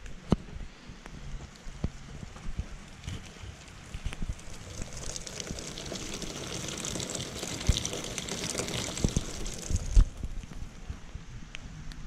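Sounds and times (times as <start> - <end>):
rain patter: 2.5 - 10.8
water splashing from downspout: 2.8 - 10.8.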